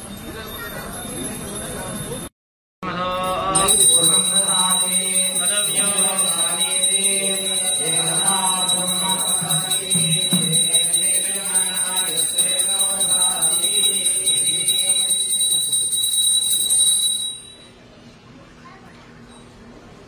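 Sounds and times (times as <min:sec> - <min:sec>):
hand bell ringing rapidly: 0:03.2 - 0:17.7
people singing a hymn: 0:04.0 - 0:14.6.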